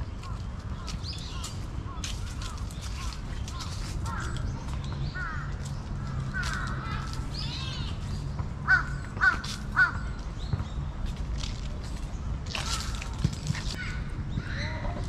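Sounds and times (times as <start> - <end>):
crow cawing: 0.2 - 4.4, 5.2 - 7.2, 8.6 - 10.0.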